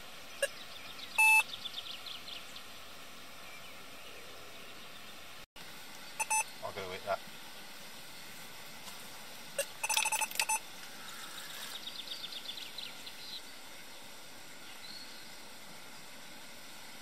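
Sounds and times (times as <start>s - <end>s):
bite alarm beeps: 1.2s - 1.4s, 6.2s - 6.5s, 9.6s - 10.6s.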